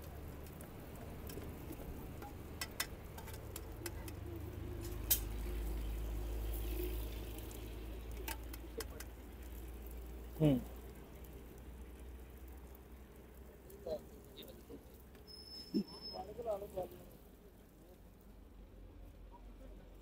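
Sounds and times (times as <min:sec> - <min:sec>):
spatula clicking on griddle: 0:02.1 - 0:04.2.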